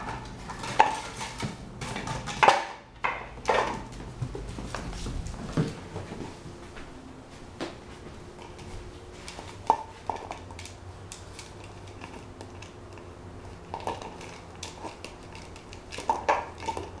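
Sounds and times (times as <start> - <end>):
puppy chewing plastic bottle: 8.4 - 17.0.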